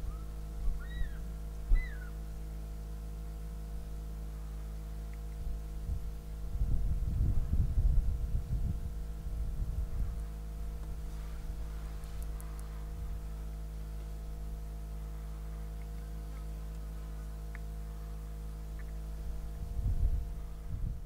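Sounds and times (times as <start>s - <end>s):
low rumbling: 0.0s - 21.0s
steady low hum: 0.0s - 21.0s
faint ticks: 12.0s - 12.7s.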